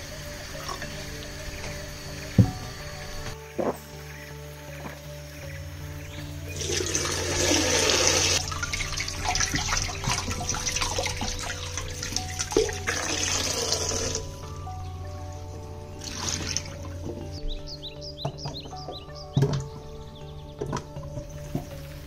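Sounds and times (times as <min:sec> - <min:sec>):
tap water running into sink: 0:06.6 - 0:14.3.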